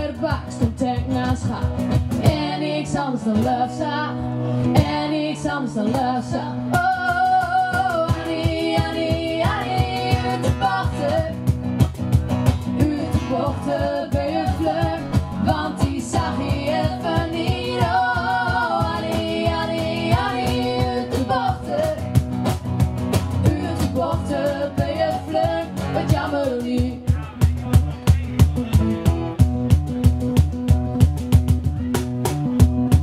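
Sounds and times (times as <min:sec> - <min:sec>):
cajon beat: 0:00.0 - 0:03.8, 0:04.7 - 0:05.2, 0:05.8 - 0:33.0
women singing: 0:00.0 - 0:11.5, 0:12.6 - 0:22.2, 0:23.3 - 0:27.0
strummed acoustic guitar: 0:00.0 - 0:33.0.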